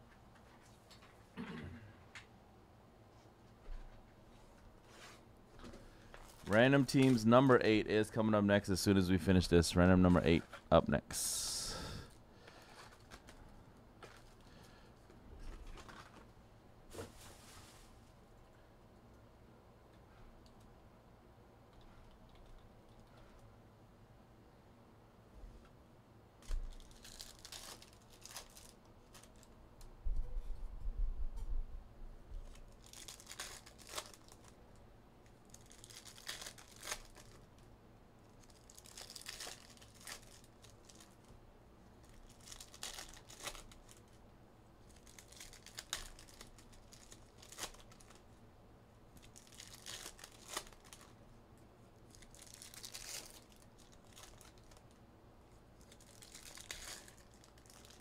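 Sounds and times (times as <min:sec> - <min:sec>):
foil wrappers tearing and crinkling: 0:26.4 - 0:29.5, 0:32.5 - 0:34.6, 0:35.2 - 0:37.6, 0:38.2 - 0:41.4, 0:42.0 - 0:44.2, 0:44.8 - 0:48.3, 0:49.2 - 0:51.2, 0:52.0 - 0:55.0, 0:55.8 - 0:58.0.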